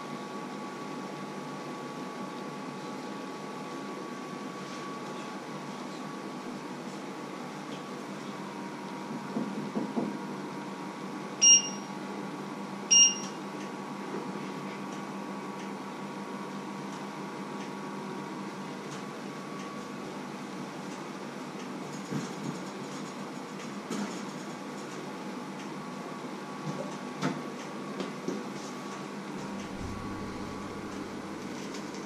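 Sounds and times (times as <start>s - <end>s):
short electronic beeps: 11.4s - 11.9s, 12.9s - 13.4s
steady low hum: 28.5s - 32.0s.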